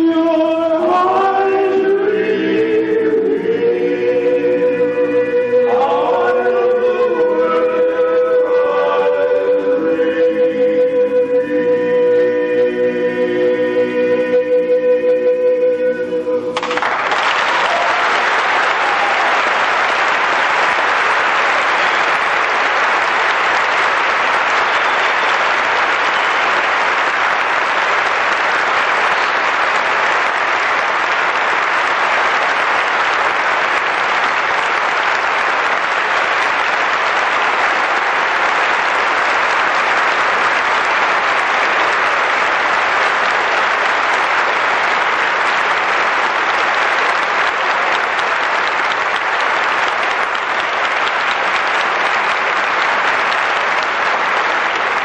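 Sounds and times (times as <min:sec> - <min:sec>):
audience applauding: 0:16.4 - 0:55.0.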